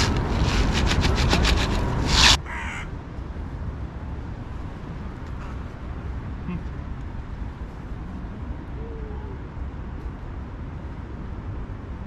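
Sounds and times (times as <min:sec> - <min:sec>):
crows calling harshly: 0:02.4 - 0:02.9.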